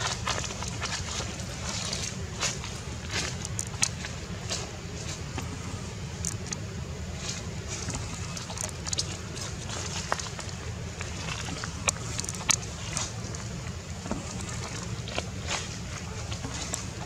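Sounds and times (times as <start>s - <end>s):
sharp clicks and crackles: 3.2s - 4.0s.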